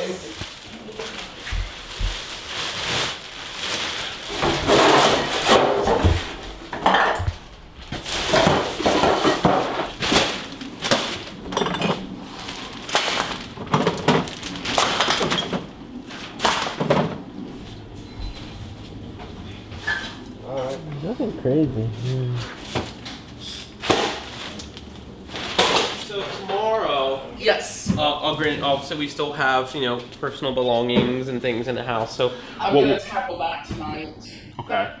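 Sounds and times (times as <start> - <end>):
rustling: 0.2 - 6.4
clatter of containers and jars: 11.5 - 12.1.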